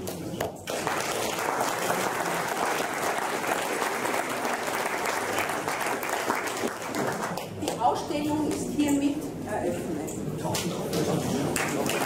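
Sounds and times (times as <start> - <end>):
audience applauding: 0.0 - 7.6, 11.0 - 12.0.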